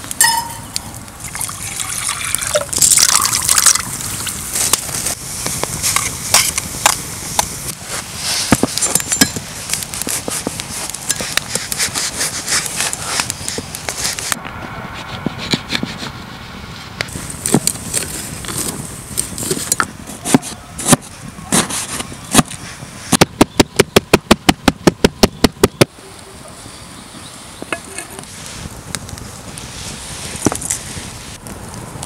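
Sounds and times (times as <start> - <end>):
cleaver knocking and scraping board: 19.4 - 23.5.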